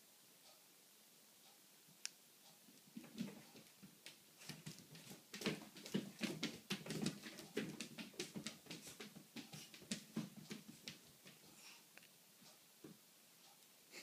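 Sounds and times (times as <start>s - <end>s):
cat claws tapping on tile: 3.0s - 11.4s.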